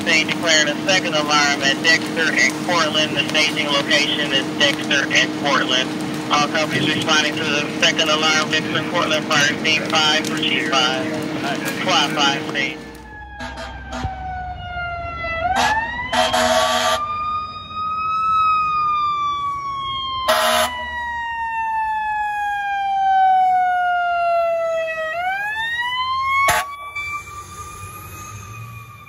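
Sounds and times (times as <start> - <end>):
fire truck siren wailing: 0.0 - 29.0
loud horn blasts: 13.4 - 14.2, 15.5 - 17.0, 20.3 - 20.8, 26.5 - 26.9.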